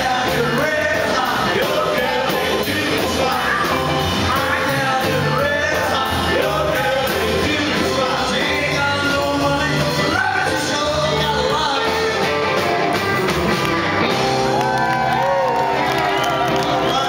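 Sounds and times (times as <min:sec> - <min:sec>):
man singing: 0:00.0 - 0:12.6, 0:16.6 - 0:17.0
drum kit beat: 0:00.0 - 0:14.7.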